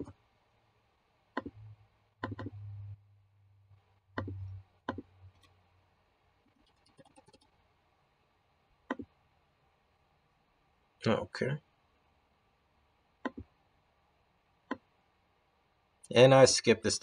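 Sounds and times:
computer mouse clicks: 1.3s - 1.6s, 2.2s - 2.6s, 4.2s - 5.6s, 6.6s - 7.6s, 8.9s - 9.1s, 13.2s - 13.5s
low hum: 1.4s - 6.2s
soft keyboard typing: 2.2s - 2.6s, 4.2s - 5.6s, 6.5s - 7.6s, 8.9s - 9.2s, 13.2s - 13.5s.

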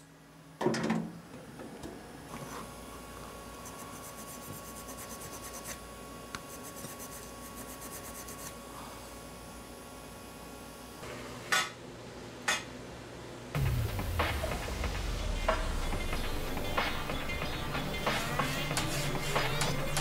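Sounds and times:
faint high whine: 13.6s - 20.0s
abrasive pad rubbing metal edges: 16.5s - 20.0s.

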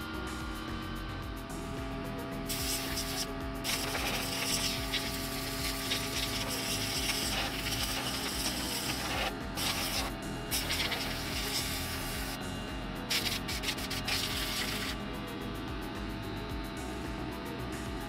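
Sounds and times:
compressed air hissing from blow gun: 2.5s - 12.4s, 13.1s - 15.0s.

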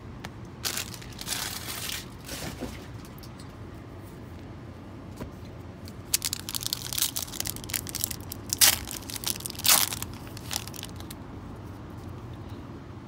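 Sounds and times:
foil wrapper tearing: 0.6s - 2.2s, 6.0s - 11.2s
foil wrapper crinkling: 0.6s - 2.4s, 5.9s - 11.2s.

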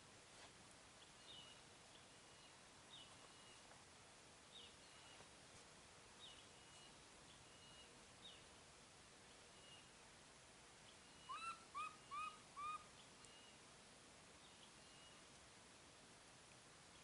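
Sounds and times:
faint forest hiss: 0.0s - 17.0s
bird call with whistle: 11.2s - 13.5s.

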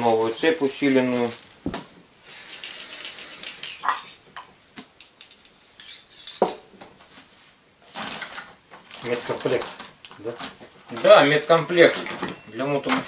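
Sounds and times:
plastic bag rustling: 0.0s - 2.0s
metallic clinks of parts: 7.8s - 13.0s.

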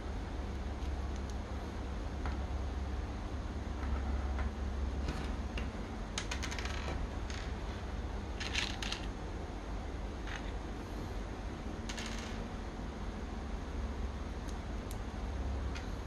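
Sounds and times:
steady low hum: 0.0s - 16.0s
plastic parts clattering on table: 8.4s - 9.1s.

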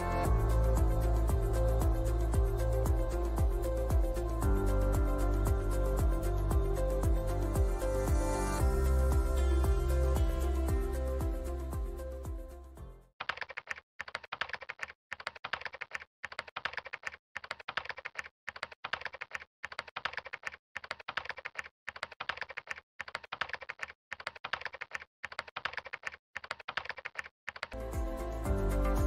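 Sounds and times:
music: 0.0s - 13.1s, 27.8s - 29.0s
keyboard key clicks: 13.2s - 27.8s.

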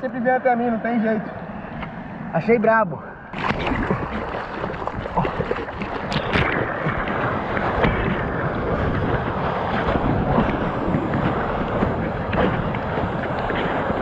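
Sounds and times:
water splashing near surfboard: 3.3s - 14.0s
breaking whitewater: 3.4s - 14.0s.

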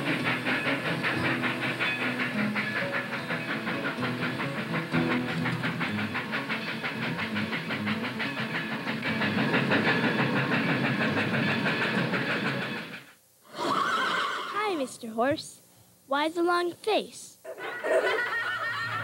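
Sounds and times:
toy train wheels clicking: 0.0s - 13.1s.

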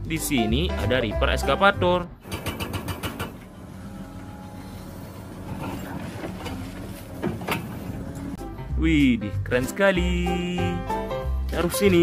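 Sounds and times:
excavator running: 2.2s - 8.4s.

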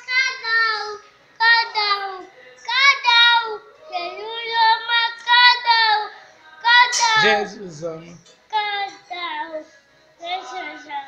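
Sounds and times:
small child singing: 0.0s - 7.4s, 8.5s - 11.0s.

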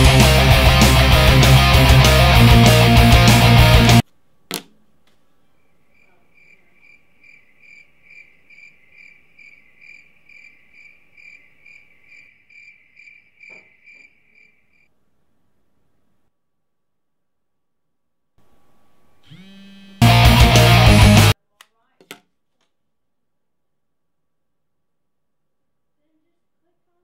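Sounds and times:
crickets chirping: 5.5s - 14.9s.

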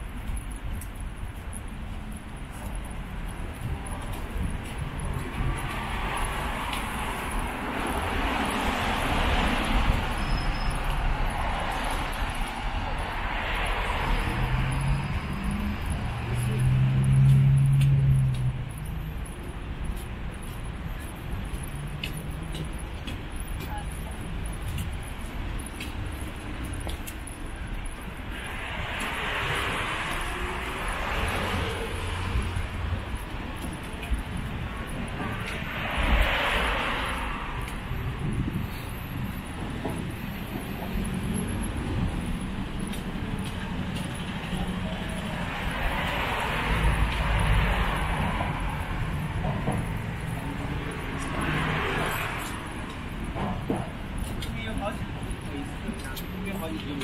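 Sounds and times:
steady low traffic rumble: 0.0s - 57.0s
vehicle passing: 11.4s - 19.3s.

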